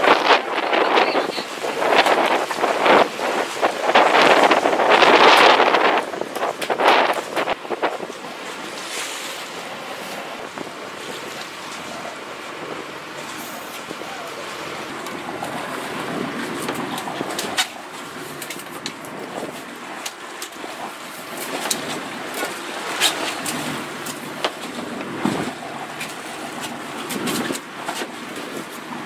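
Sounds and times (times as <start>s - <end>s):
sea noise: 0.0s - 29.0s
wind: 0.0s - 29.0s.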